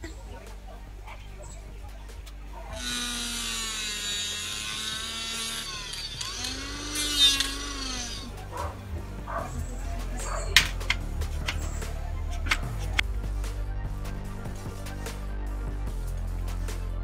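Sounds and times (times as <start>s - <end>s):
cutting disc motor whine: 2.7s - 8.7s
disc grinding scrape: 2.7s - 13.0s.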